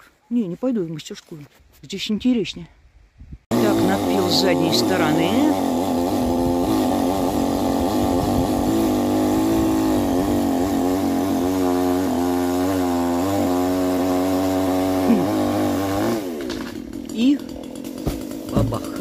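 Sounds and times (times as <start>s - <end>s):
chainsaw cutting wood: 3.5s - 19.0s.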